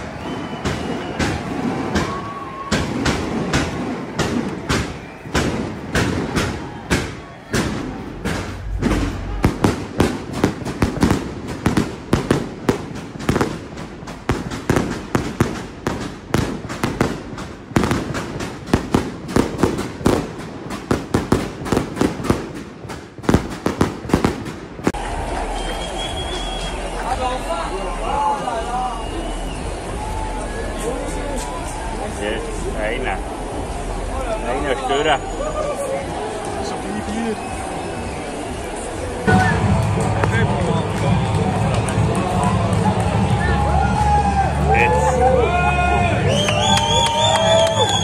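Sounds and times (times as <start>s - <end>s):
sharp cracks and bangs: 0.0s - 25.1s.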